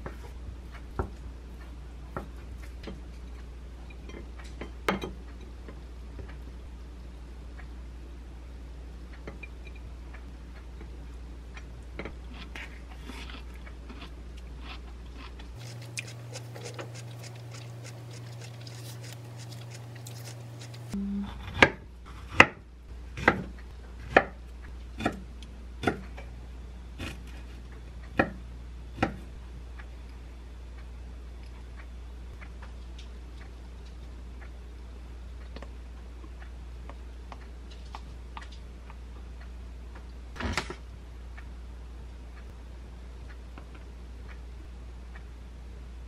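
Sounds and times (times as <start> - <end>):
low hum: 0.0 - 22.1.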